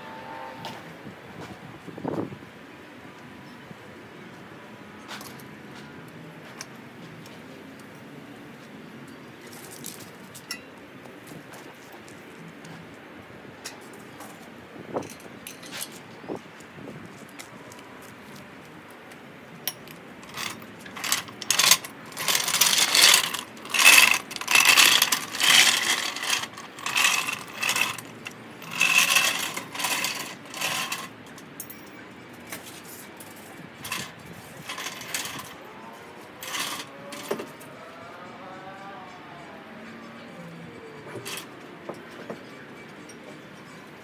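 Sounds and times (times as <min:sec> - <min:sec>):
metal tools clinking: 0:19.7 - 0:32.0, 0:33.8 - 0:35.6, 0:36.4 - 0:37.6.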